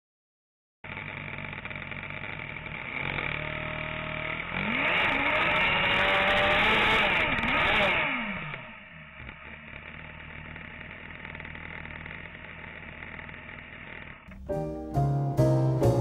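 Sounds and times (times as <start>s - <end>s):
race car engine revving: 2.7s - 14.5s.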